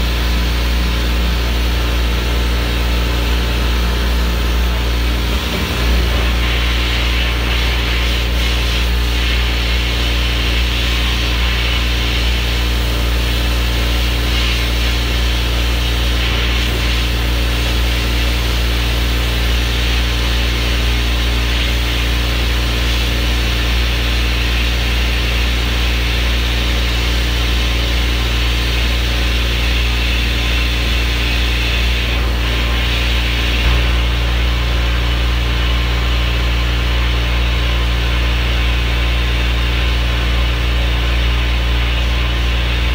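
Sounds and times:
deep steady hum: 0.0s - 24.1s, 24.8s - 42.9s
sandblaster hissing on metal: 5.0s - 26.8s, 27.6s - 34.2s.

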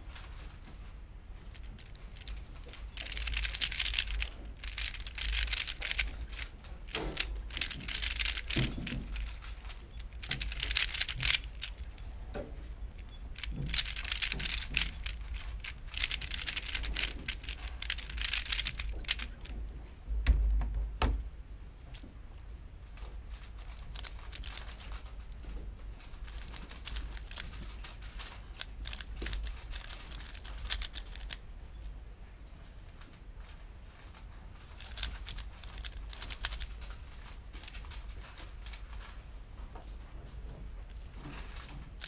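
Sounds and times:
plastic puzzle cube clacking: 1.5s - 19.7s, 23.3s - 31.4s, 34.1s - 39.1s
dull low thump: 19.7s - 21.4s.

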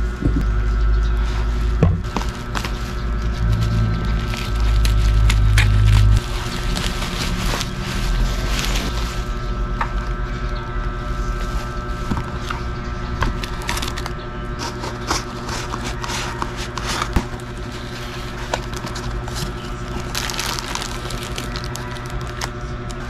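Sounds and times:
steady background hum: 0.0s - 23.0s
cardboard box scraping and rustling: 1.2s - 9.4s, 13.3s - 22.4s.

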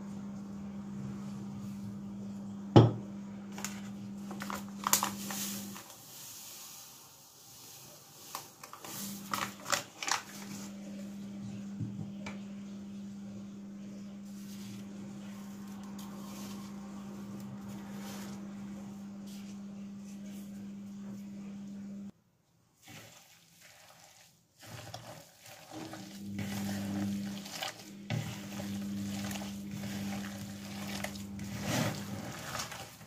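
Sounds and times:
steady low hum: 10.3s - 22.1s.

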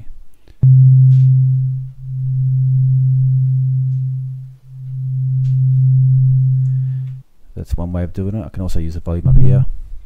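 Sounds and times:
low pure synth tone beating: 0.6s - 7.2s.

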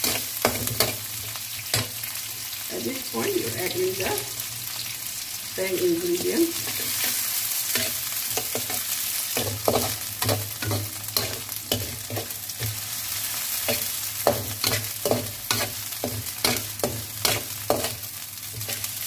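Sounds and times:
metal spatula scraping a pan: 0.0s - 2.0s, 6.2s - 19.0s
onions sizzling in hot oil: 0.0s - 19.0s.

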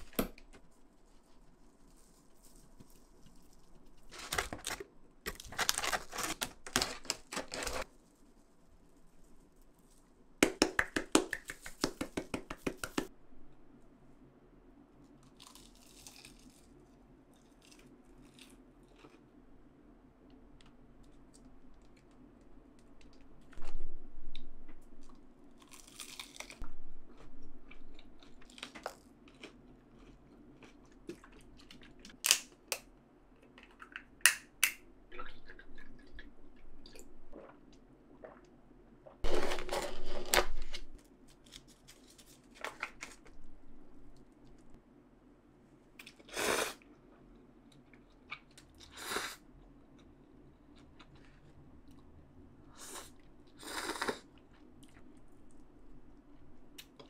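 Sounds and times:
crunching bites and chewing: 15.2s - 16.8s, 25.0s - 32.5s.

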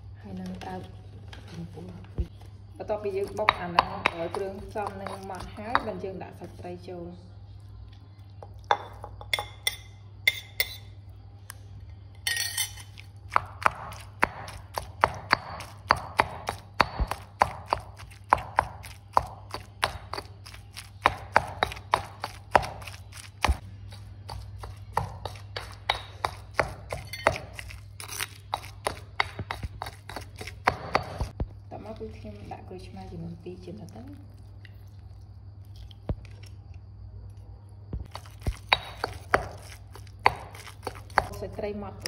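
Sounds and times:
pestle pounding in mortar: 3.1s - 6.0s, 13.2s - 31.4s, 38.0s - 41.4s.

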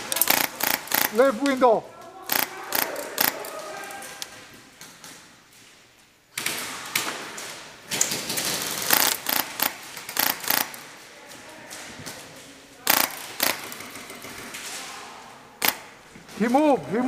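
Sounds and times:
airsoft guns firing: 0.0s - 4.2s, 6.3s - 11.0s, 12.8s - 14.8s, 15.6s - 16.0s.

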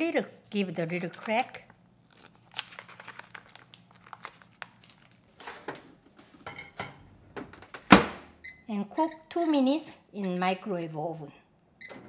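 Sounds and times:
plastic film crinkling: 0.6s - 5.9s.

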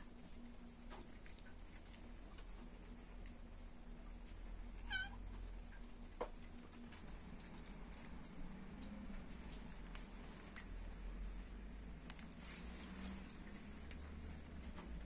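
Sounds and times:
cat meowing: 4.8s - 5.3s.

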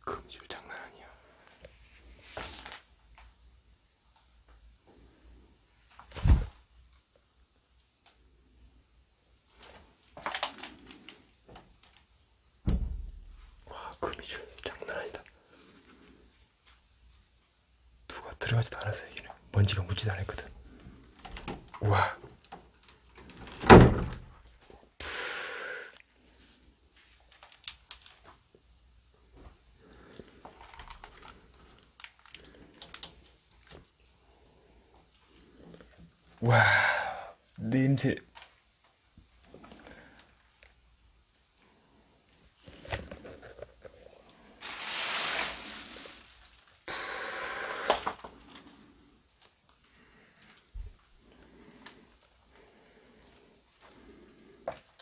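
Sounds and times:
loud thump: 12.6s - 13.5s, 23.7s - 24.2s
wooden door pushed open: 12.7s - 13.2s, 23.4s - 24.3s
noisy breaths close to microphone: 46.9s - 55.0s.

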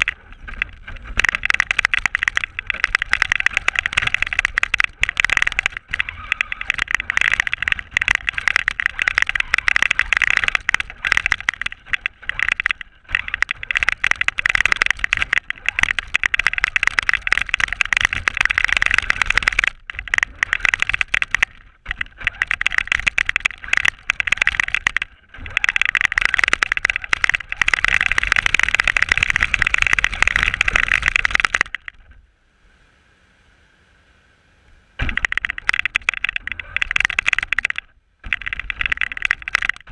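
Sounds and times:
chassis chattering: 0.0s - 32.1s, 35.0s - 39.9s
toy car motor whining: 2.6s - 31.5s
faint steady tone: 31.9s - 35.1s.

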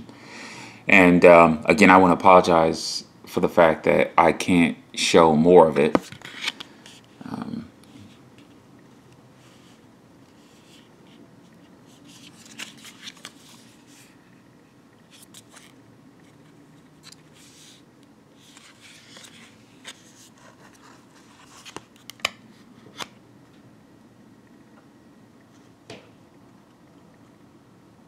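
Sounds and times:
card rustling and scraping: 6.0s - 7.1s, 9.4s - 14.2s, 15.1s - 17.8s, 18.4s - 23.1s.

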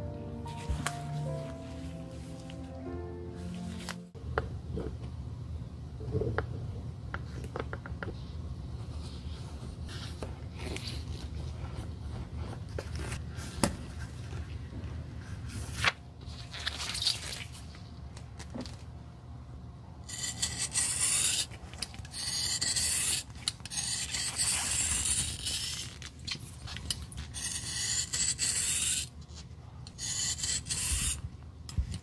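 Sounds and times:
scratching of tracing: 20.1s - 29.2s, 29.9s - 31.3s.

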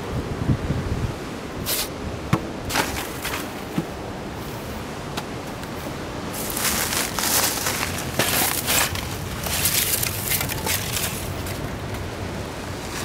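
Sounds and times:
wind buffeting microphone: 0.0s - 13.0s
rustle of leaves and twigs: 2.7s - 4.9s, 5.7s - 13.0s.

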